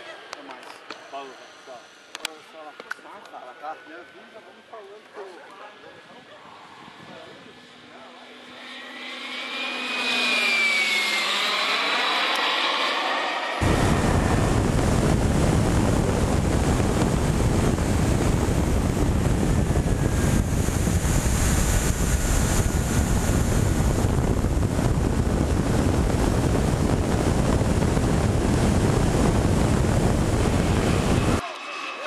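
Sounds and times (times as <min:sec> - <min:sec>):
wind rushing over microphone: 0:13.6 - 0:31.4.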